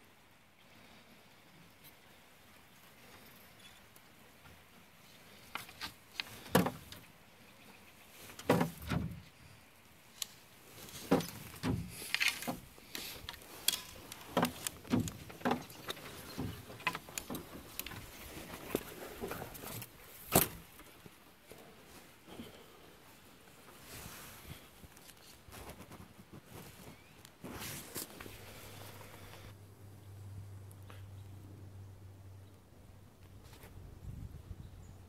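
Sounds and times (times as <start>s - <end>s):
brush scraping canoe hull: 8.1s - 9.4s, 10.6s - 20.6s, 23.7s - 29.5s.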